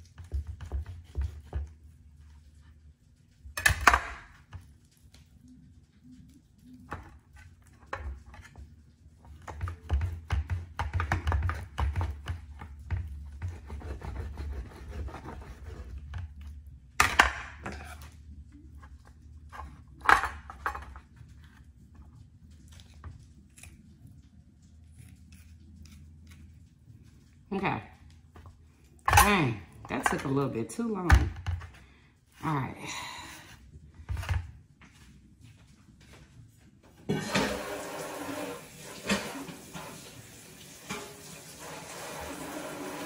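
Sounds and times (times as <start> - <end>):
knife sawing through meat: 13.5 - 16.0.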